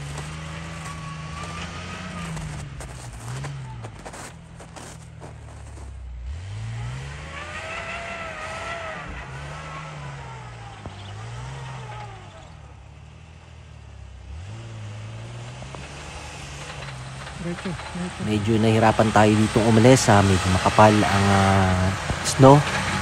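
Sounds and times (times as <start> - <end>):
vehicle engine revving: 0.0 - 23.0.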